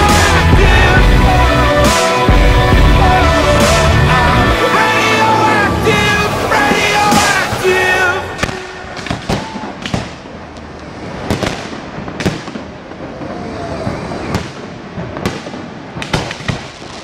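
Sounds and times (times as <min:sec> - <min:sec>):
fireworks bangs and pops: 0:06.6 - 0:17.0.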